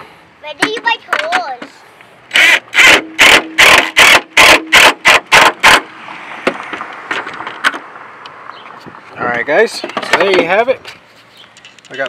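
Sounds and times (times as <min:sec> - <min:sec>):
impact wrench bursts: 0:02.3 - 0:06.6.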